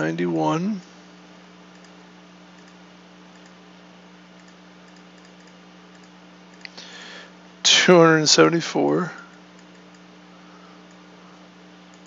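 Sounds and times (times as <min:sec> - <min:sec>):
steady low hum: 0:00.0 - 0:12.0
computer input clicks: 0:01.7 - 0:02.0, 0:02.6 - 0:03.6, 0:04.4 - 0:06.7.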